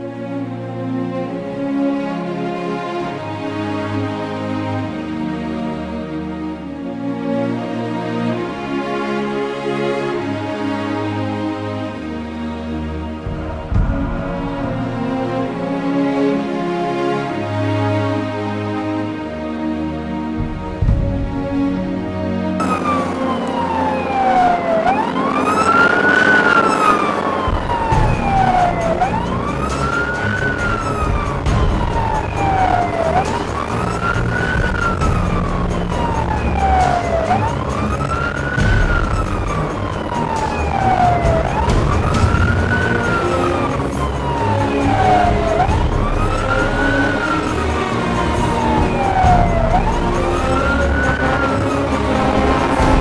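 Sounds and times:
fire engine wail siren: 0.0s - 53.0s
truck engine and road noise: 0.0s - 53.0s.

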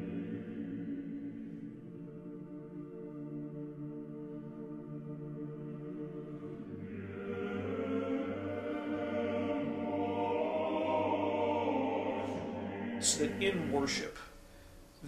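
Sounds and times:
low drone: 0.0s - 14.1s
choral chant: 0.0s - 14.3s.

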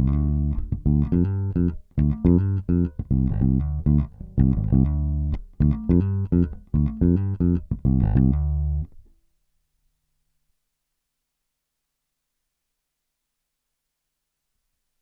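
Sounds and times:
electric bass plucked notes: 0.0s - 9.0s.

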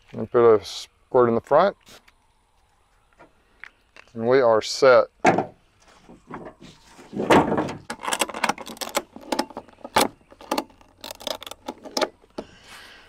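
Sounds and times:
strap scraping rustle: 5.4s - 13.0s
ratchet metal clicks: 7.9s - 12.1s.

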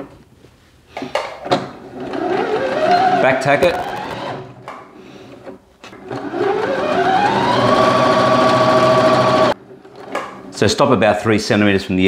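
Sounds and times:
sewing machine motor running: 6.1s - 9.6s.

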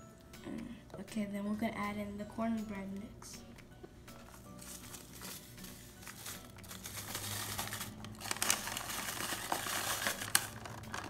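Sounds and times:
cardboard box crinkling: 4.6s - 11.0s.

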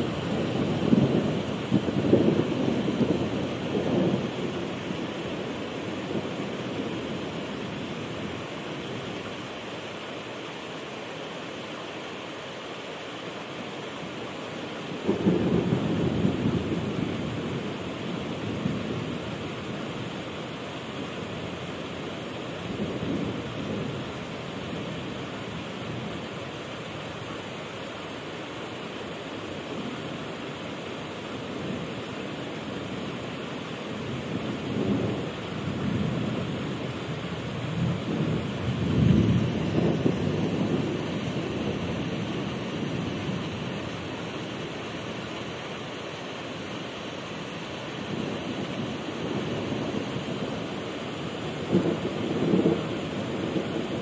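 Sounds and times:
rolling thunder: 0.0s - 4.8s, 15.0s - 19.3s, 37.5s - 43.6s, 51.4s - 54.0s
heavy rain: 0.0s - 54.0s.

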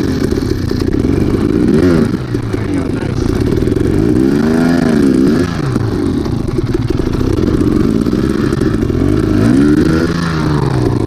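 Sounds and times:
dirt bike engine revving: 0.0s - 11.0s.

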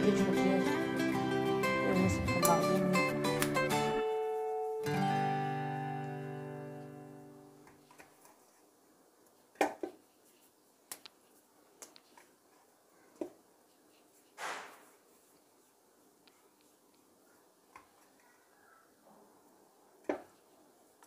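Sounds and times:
strummed guitar chord: 0.0s - 4.2s, 4.8s - 7.5s.

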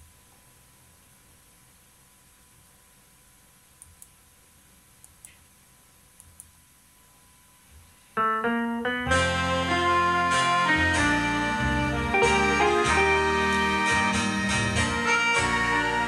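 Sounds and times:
faint clicks: 3.8s - 4.2s, 5.0s - 5.4s
electronic keyboard playing: 8.2s - 16.0s.

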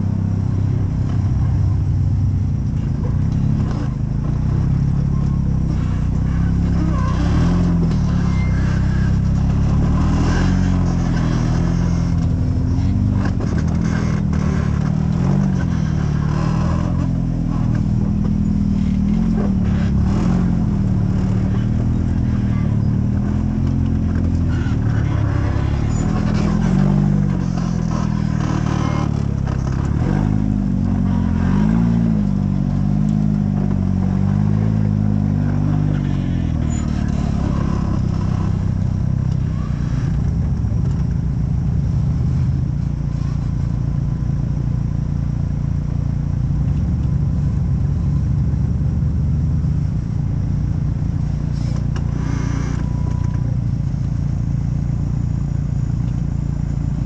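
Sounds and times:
off-road vehicle engine revving: 0.0s - 57.0s.

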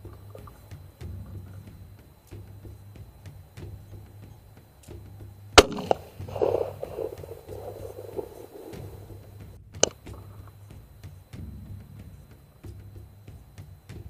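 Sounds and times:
rifle shot: 5.6s - 8.9s
quieter sharp crack: 5.6s - 10.1s.

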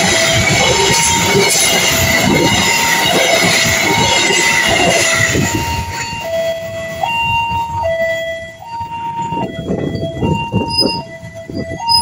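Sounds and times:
high wheel squeal: 0.0s - 6.3s, 9.2s - 12.0s
level crossing alarm: 0.0s - 12.0s
train coaches rolling past: 0.0s - 12.0s.

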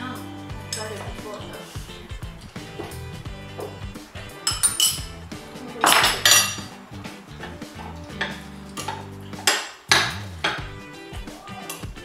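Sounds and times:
soft background music: 0.0s - 12.0s
spoons clinking on ceramic bowls: 4.4s - 5.2s, 5.8s - 6.8s.

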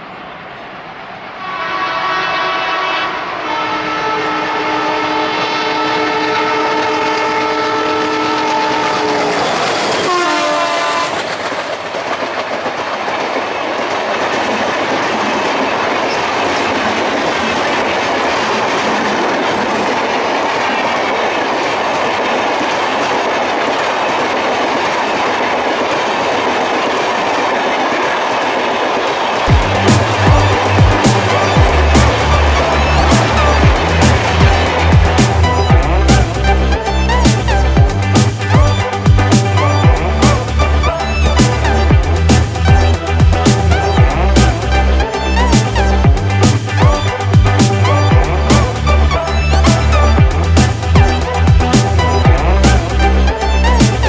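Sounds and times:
train coaches rushing and clattering: 0.0s - 54.0s
locomotive horn blast: 1.4s - 11.2s.

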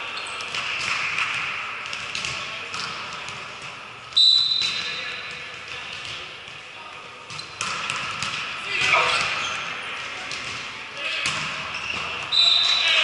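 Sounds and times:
players' voices: 0.0s - 13.0s
shrill referee's whistle blast: 4.2s - 4.8s, 12.3s - 12.8s.

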